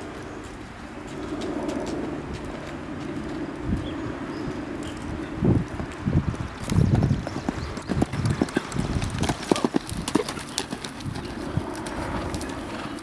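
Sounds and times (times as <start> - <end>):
cantering hoofbeats on sand: 0.0 - 13.0.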